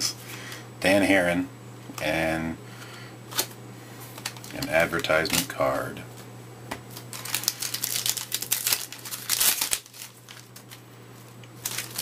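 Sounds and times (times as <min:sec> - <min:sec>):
foil wrapper crinkling: 0:04.1 - 0:05.6, 0:06.9 - 0:12.0.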